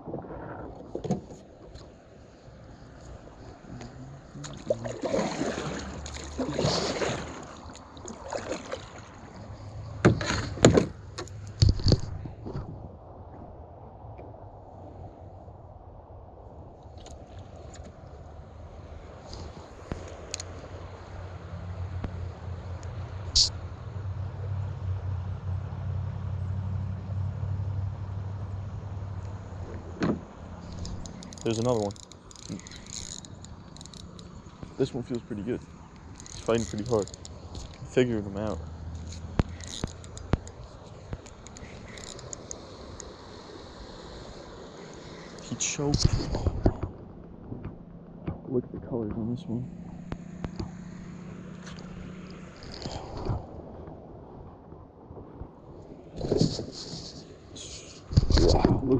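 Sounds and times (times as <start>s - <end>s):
low outdoor rumble: 0.0s - 58.9s
paddle splashing in water: 3.1s - 12.5s.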